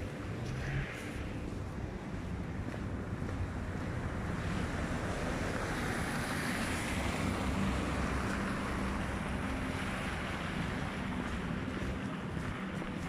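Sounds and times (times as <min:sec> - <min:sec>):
low rumble: 0:00.0 - 0:04.2.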